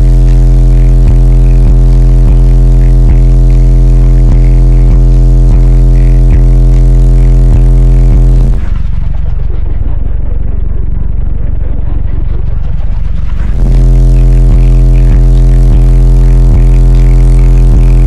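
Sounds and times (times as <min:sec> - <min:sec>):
loud bass music from subwoofers: 0:00.0 - 0:18.0.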